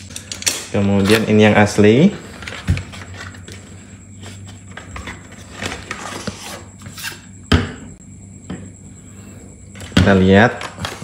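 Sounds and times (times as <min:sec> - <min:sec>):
cardboard box rustling and scraping: 0:04.2 - 0:07.2.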